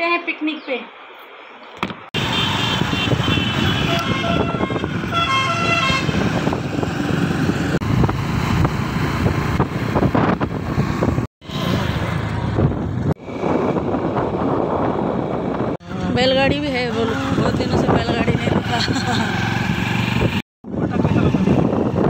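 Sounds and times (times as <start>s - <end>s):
motorcycle road and engine noise: 1.8s - 22.0s
vehicle horn honking: 2.2s - 6.2s
wind rush: 2.2s - 22.0s.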